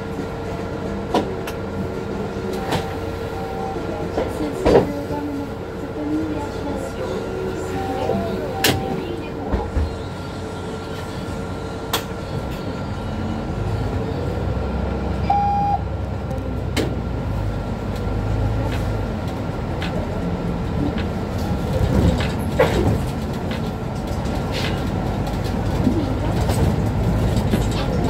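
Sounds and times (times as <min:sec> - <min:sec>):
bus engine and road rumble: 0:00.0 - 0:28.0
short beep: 0:15.2 - 0:15.8.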